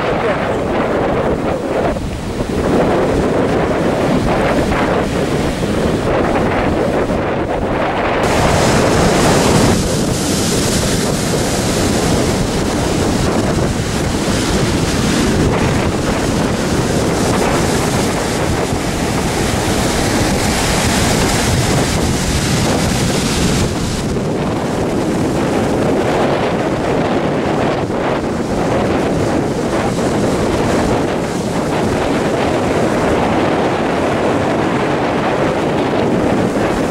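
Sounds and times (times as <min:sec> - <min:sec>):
surf breaking on beach: 0:00.0 - 0:36.9
wind buffeting microphone: 0:00.0 - 0:36.9.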